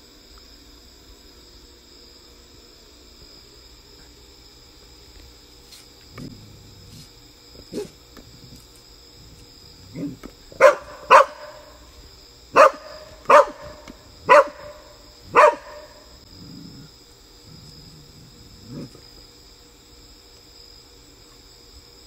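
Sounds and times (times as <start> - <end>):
high insect drone: 0.0 - 22.0
dog barking: 7.7 - 8.0, 9.9 - 11.8, 12.5 - 16.1.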